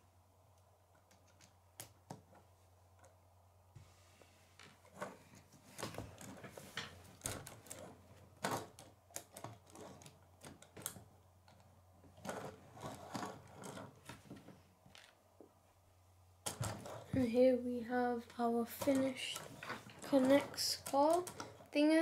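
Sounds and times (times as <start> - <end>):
plastic toy car rattling on wood: 5.8 - 14.3, 16.4 - 17.4, 18.4 - 22.0.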